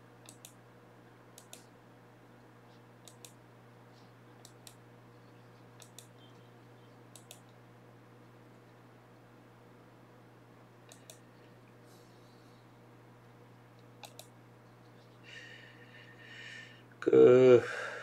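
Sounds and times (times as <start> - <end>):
faint low hum: 0.0 - 18.0
computer mouse clicking: 0.2 - 0.6, 1.4 - 1.7, 3.0 - 3.4, 5.8 - 6.1, 7.1 - 7.6, 10.9 - 11.2, 14.0 - 14.3.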